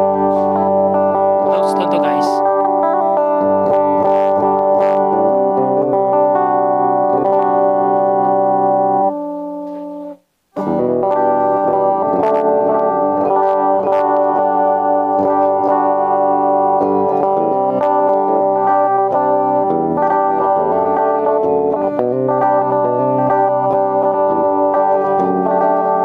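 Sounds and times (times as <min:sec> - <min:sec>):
clean electric guitar: 0:00.0 - 0:26.0.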